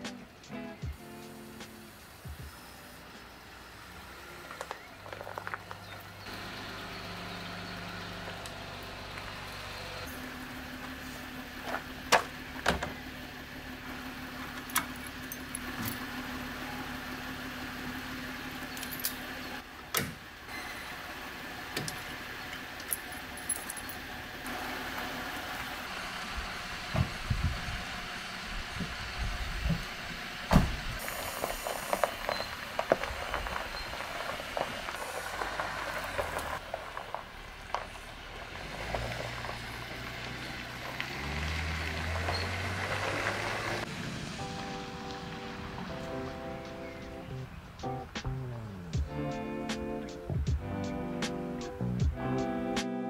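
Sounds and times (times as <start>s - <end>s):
steady outdoor hiss: 0.0s - 53.0s.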